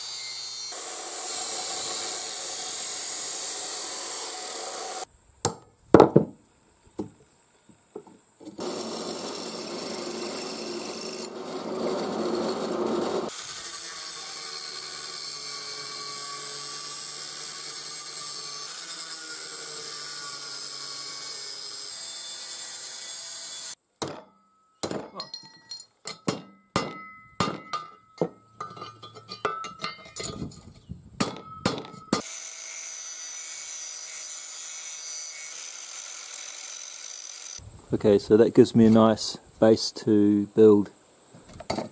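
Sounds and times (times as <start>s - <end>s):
angle grinder cutting steel: 0.0s - 5.1s, 8.6s - 23.8s, 32.2s - 37.6s.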